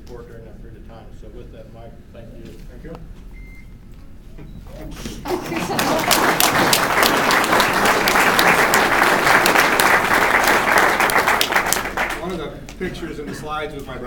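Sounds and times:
audience applauding: 0:05.2 - 0:12.5.

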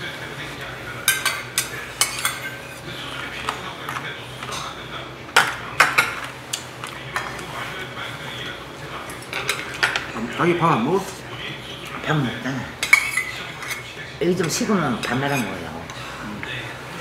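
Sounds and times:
spoons clinking against bowls: 0:01.0 - 0:04.7, 0:09.0 - 0:10.2, 0:12.8 - 0:15.6.

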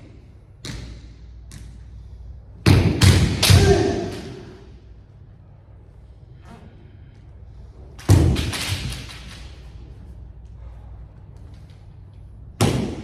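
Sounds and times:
person shouting: 0:03.4 - 0:04.3.

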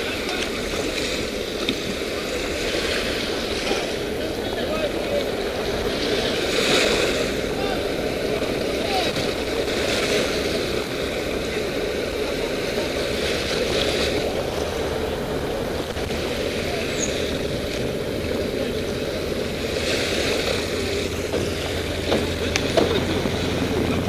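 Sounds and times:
motorboat engine: 0:00.0 - 0:24.0
water noise: 0:00.0 - 0:24.0
wind: 0:00.0 - 0:24.0.

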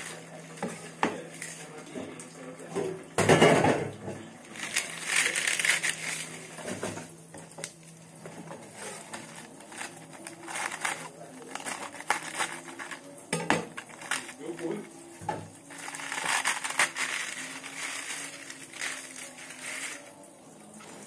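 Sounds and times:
crunching and rustling: 0:04.5 - 0:07.1, 0:07.7 - 0:20.2.

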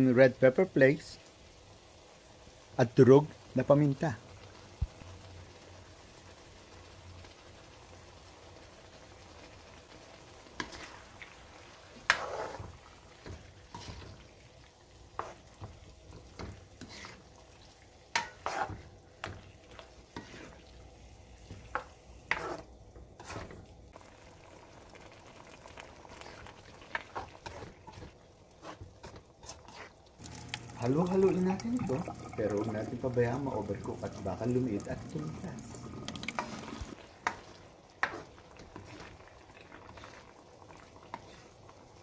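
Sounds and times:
faint sizzle: 0:00.0 - 0:42.0
spoon scraping and knocking on wok: 0:12.0 - 0:14.2, 0:15.2 - 0:17.2, 0:18.1 - 0:20.6, 0:21.5 - 0:23.6.

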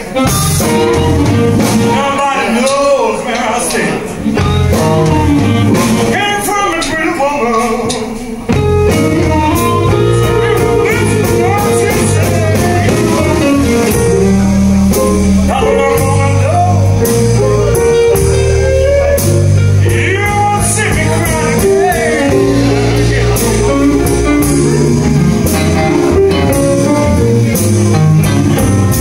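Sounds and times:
blues band playing: 0:00.0 - 0:29.0
person singing: 0:00.1 - 0:27.8.

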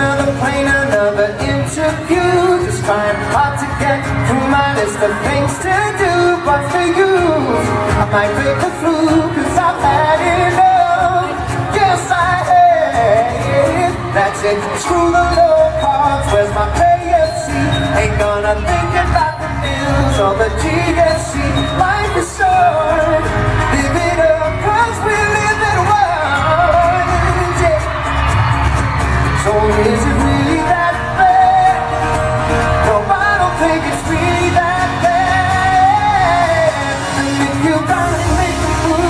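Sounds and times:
person singing: 0:00.0 - 0:39.0
strummed acoustic guitars: 0:00.0 - 0:39.0.

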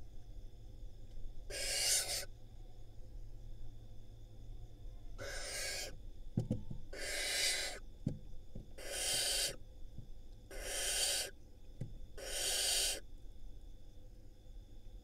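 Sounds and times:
owl nestlings hissing: 0:01.5 - 0:02.3, 0:05.2 - 0:06.0, 0:06.9 - 0:07.8, 0:08.7 - 0:09.6, 0:10.5 - 0:11.4, 0:12.2 - 0:13.0.

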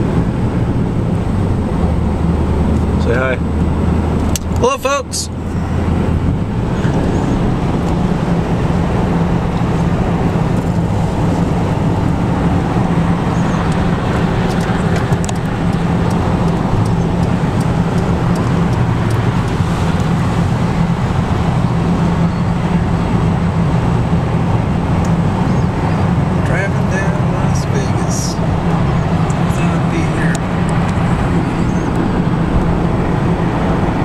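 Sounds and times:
car engine and tyre rumble: 0:00.0 - 0:34.0.

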